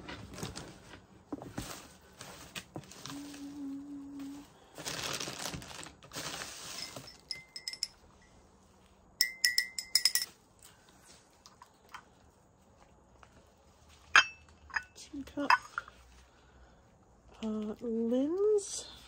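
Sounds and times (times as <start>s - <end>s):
ceramic pieces clinking: 6.8s - 8.0s, 9.2s - 10.4s, 14.1s - 15.9s.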